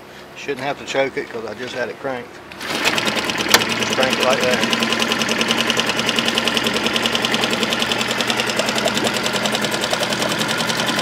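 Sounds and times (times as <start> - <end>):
outboard engine idling: 2.6 - 11.0.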